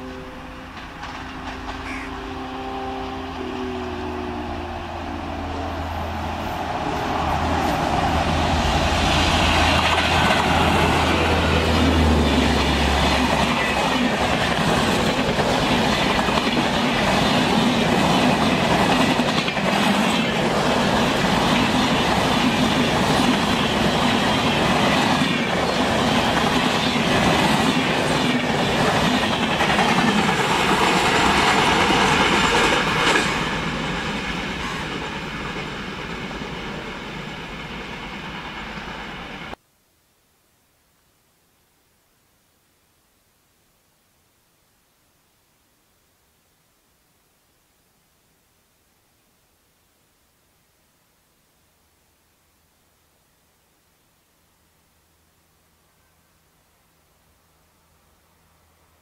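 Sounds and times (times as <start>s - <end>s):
locomotive low hum: 0.0s - 13.4s
train wheels rumbling and clacking: 0.5s - 2.4s, 3.0s - 39.6s.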